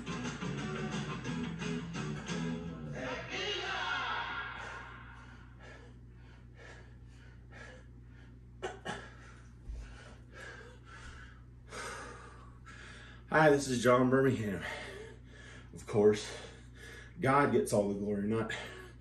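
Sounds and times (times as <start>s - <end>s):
man panting: 4.5s - 13.3s, 14.5s - 17.2s.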